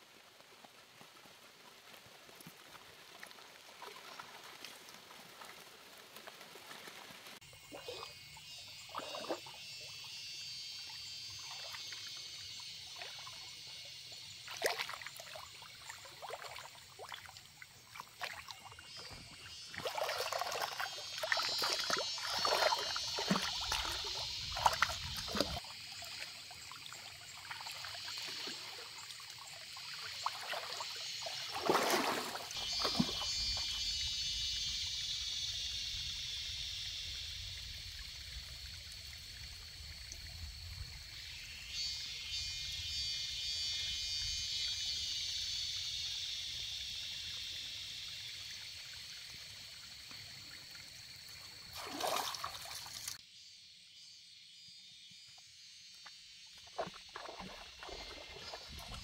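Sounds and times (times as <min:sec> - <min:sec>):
water splashing: 0:02.6 - 0:09.6, 0:14.4 - 0:33.7, 0:51.7 - 0:53.2, 0:56.6 - 0:59.0
stream flowing: 0:14.4 - 0:33.4, 0:50.1 - 0:53.2, 0:56.8 - 0:59.0.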